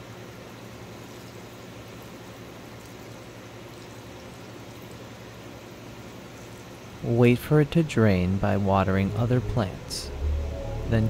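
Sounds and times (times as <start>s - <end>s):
water streaming onto soil: 0.5s - 7.0s
low hum: 7.8s - 11.0s.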